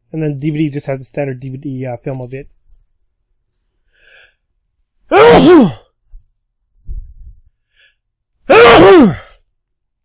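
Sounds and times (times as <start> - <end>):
man sneezing: 5.1 - 5.9, 8.5 - 9.4.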